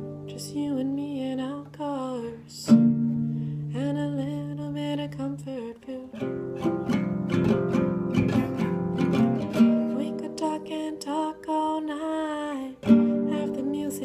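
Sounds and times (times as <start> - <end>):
woman singing: 0.0 - 6.4, 9.5 - 14.0
strummed classical guitar: 0.0 - 14.0.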